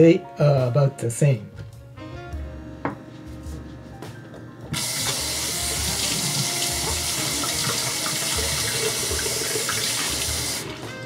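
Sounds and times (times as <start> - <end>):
faucet running into metal sink: 4.8 - 10.9.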